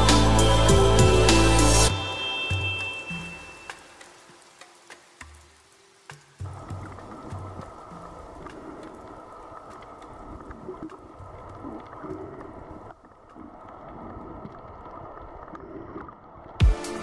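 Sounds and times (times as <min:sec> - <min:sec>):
electronic music with heavy beat: 0:00.0 - 0:03.5, 0:16.6 - 0:17.0
muffled underwater rushing: 0:06.4 - 0:16.6.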